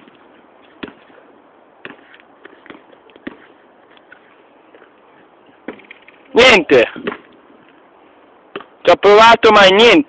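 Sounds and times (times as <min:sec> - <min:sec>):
basketball bouncing on hard court: 0:00.8 - 0:01.1.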